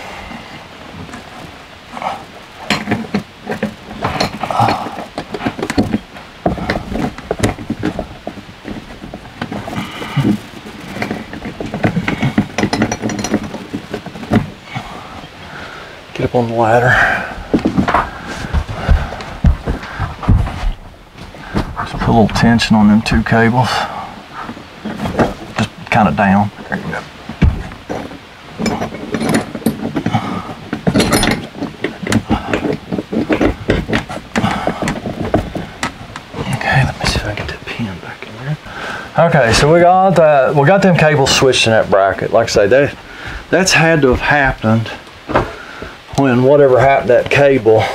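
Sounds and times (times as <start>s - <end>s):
metallic clinks and knocks of cables: 1.0s - 15.5s, 24.5s - 37.5s.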